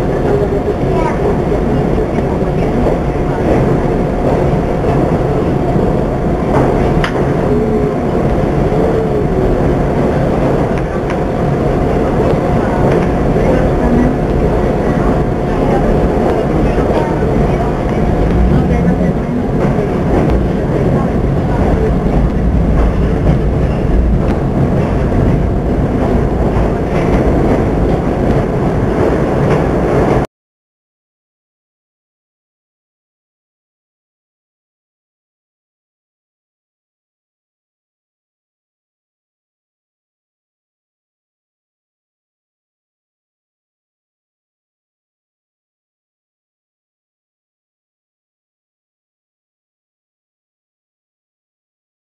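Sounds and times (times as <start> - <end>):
subway train rumbling on tracks: 0.0 - 30.3.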